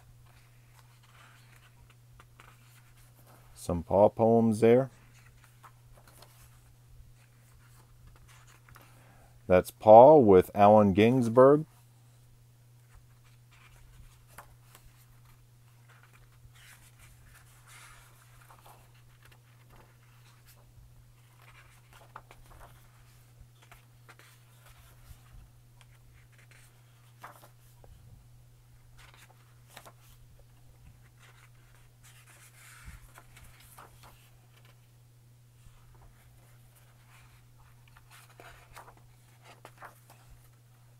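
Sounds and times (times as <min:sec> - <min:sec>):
book pages turning: 0:00.2 - 0:03.6, 0:04.9 - 0:08.9, 0:12.8 - 0:28.0, 0:29.0 - 0:34.9, 0:35.6 - 0:40.6.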